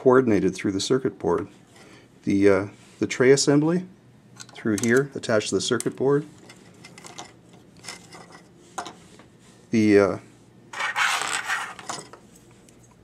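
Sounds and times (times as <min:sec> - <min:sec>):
rubbing and scraping: 0:10.7 - 0:12.1.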